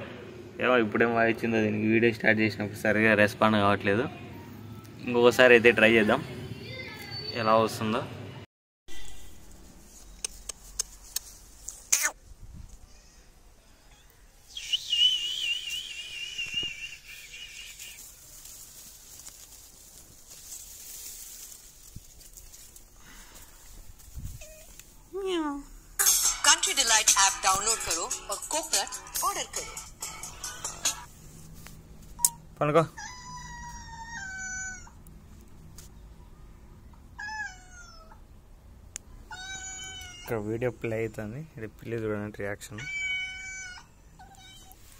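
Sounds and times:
high wavering whistle: 14.5s - 17.8s
cat meowing: 33.0s - 35.0s, 37.2s - 38.2s, 39.3s - 40.4s, 42.8s - 44.8s.

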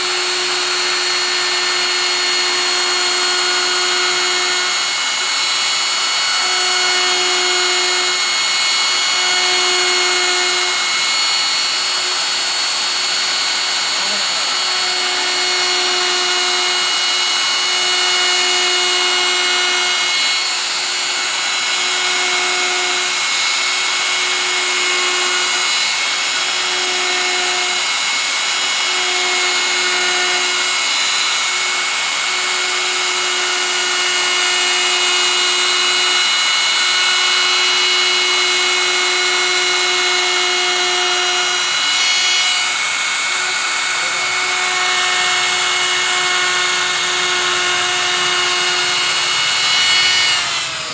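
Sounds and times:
router whining cutting wood: 0.0s - 50.9s.

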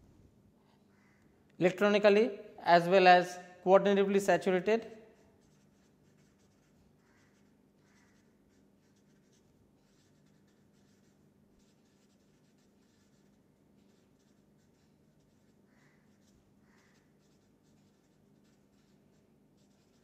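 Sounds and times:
marker scratching on paper: 4.3s - 20.0s.

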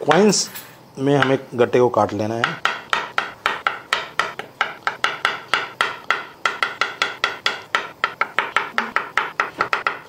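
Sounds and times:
knife knocking on cutting board: 2.4s - 10.0s.

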